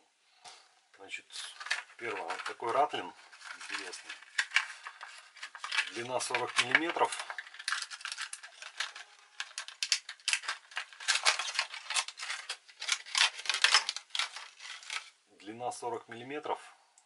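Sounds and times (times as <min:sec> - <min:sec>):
plastic packaging crinkling: 0:01.4 - 0:15.3.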